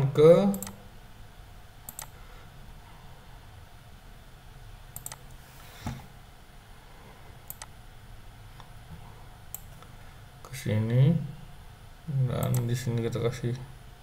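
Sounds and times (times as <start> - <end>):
low room hum: 0.0 - 14.0
computer mouse clicks: 0.5 - 0.8, 1.9 - 2.2, 5.0 - 5.4, 7.5 - 7.8, 9.5 - 9.9, 12.4 - 12.7.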